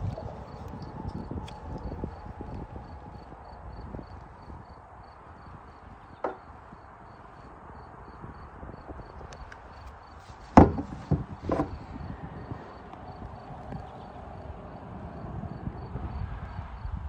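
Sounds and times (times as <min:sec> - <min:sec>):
wind rumbling on microphone: 0:00.0 - 0:17.0
knocks on plastic kayak hull: 0:10.6 - 0:11.8.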